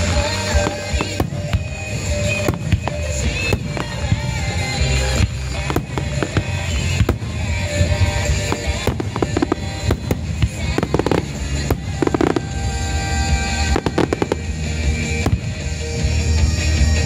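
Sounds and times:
fireworks cracking and banging: 0.0 - 17.0
music: 0.0 - 17.0.

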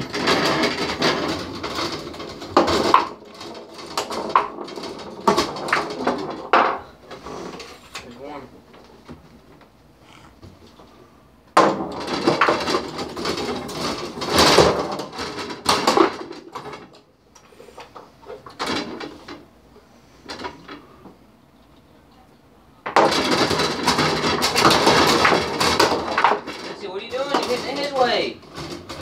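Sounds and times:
foosball rods sliding and spinning: 0.0 - 21.2, 22.9 - 29.0
foosball players and ball clacking: 0.0 - 22.0, 22.8 - 29.0.

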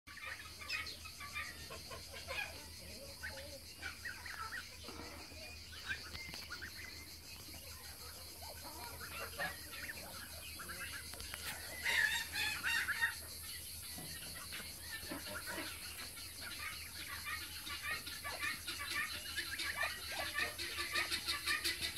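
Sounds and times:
ducklings peeping: 0.1 - 21.9
fowl calls: 0.1 - 21.9.

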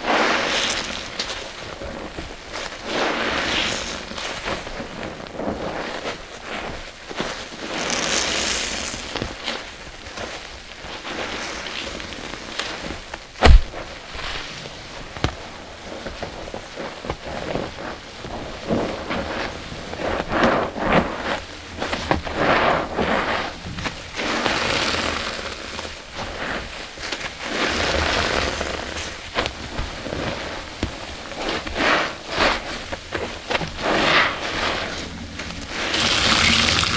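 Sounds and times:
sponge squelching with foam: 0.0 - 36.9
sharp knock: 13.4 - 13.8.

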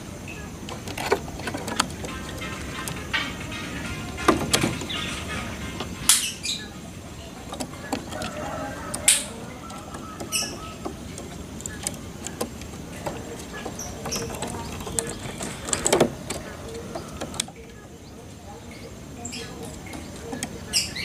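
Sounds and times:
bird tapping in bamboo cage: 0.6 - 6.6, 7.4 - 17.8.

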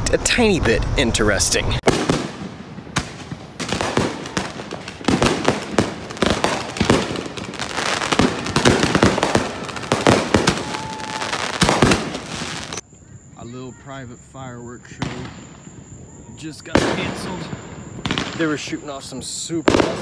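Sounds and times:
fireworks bangs and crackles: 1.6 - 12.8, 14.8 - 20.0
firework whistle: 1.9 - 12.8.

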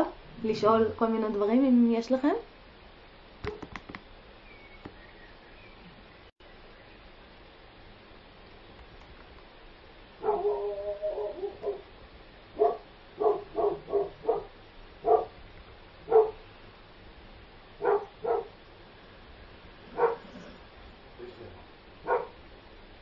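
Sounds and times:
dog barking: 10.2 - 11.9, 12.6 - 15.4, 16.1 - 16.4, 17.8 - 18.6, 19.9 - 20.5, 22.0 - 22.4.

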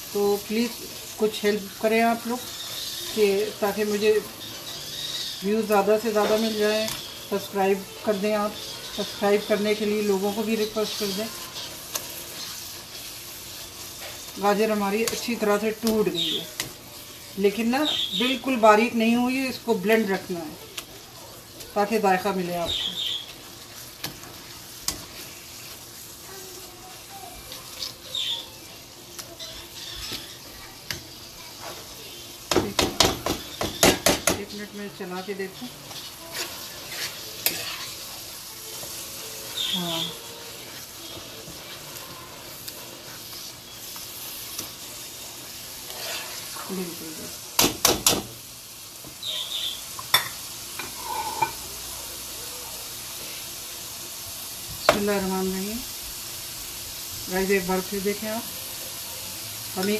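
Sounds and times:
carrots sizzling in frying pan: 0.0 - 59.9
metal spoon stirring: 0.8 - 17.1, 21.6 - 26.6, 27.4 - 31.8, 33.0 - 46.7, 50.1 - 51.6
spatula knocking and scraping pan: 21.9 - 25.8, 32.4 - 38.1, 45.9 - 46.7, 47.6 - 48.4
spoon knocking against pan: 32.5 - 34.6
fork clicking on pan: 35.9 - 38.0.

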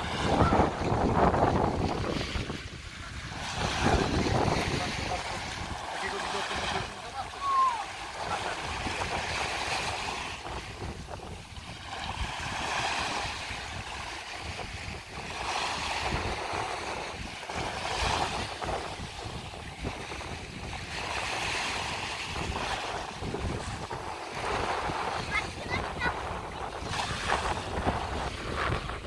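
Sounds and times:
small waves washing ashore: 0.0 - 29.0
wind buffeting microphone: 0.0 - 29.0.

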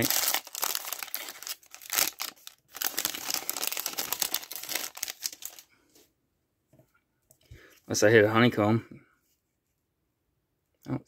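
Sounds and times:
cellophane wrapper crinkling: 0.0 - 5.7.

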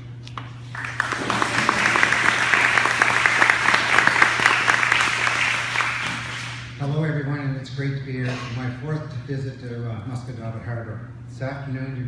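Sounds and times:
audience clapping: 0.6 - 6.8.

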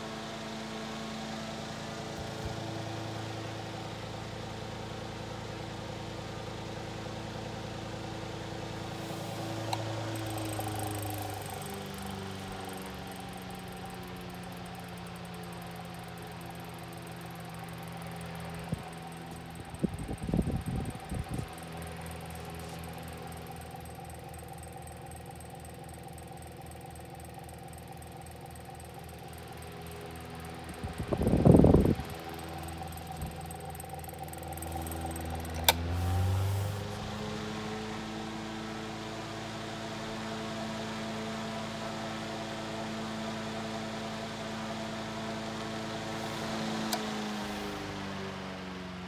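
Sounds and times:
electric fan motor humming: 0.0 - 49.0
fan speed switch click: 9.6 - 14.7, 34.4 - 36.5, 46.8 - 47.2.

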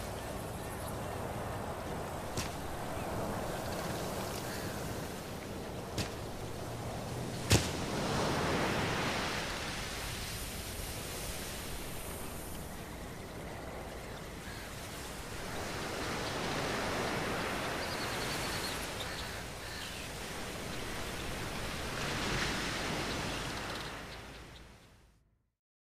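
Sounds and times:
steady rushing noise: 0.0 - 17.7.

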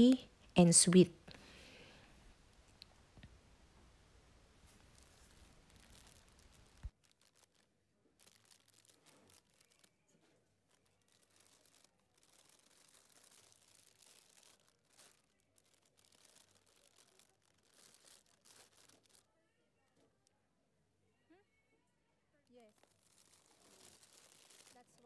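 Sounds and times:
plastic bags rustling: 4.6 - 19.2, 22.6 - 25.0.

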